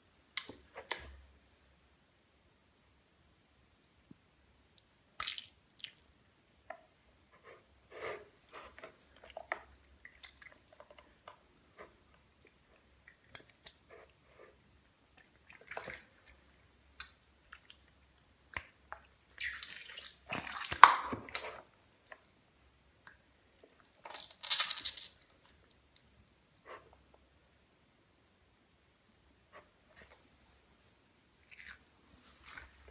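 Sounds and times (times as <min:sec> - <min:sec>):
slime squelching and sloshing: 0:07.4 - 0:22.4, 0:31.4 - 0:32.9
slime splashing: 0:15.1 - 0:21.7, 0:31.4 - 0:32.9.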